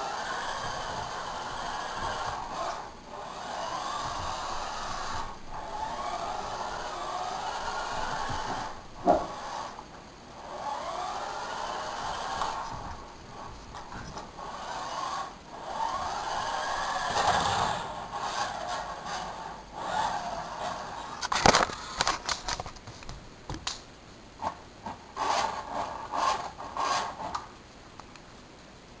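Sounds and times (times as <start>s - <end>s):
toy car electric motor whirring: 0.0s - 9.8s, 10.4s - 12.9s, 14.4s - 22.1s, 25.2s - 27.4s.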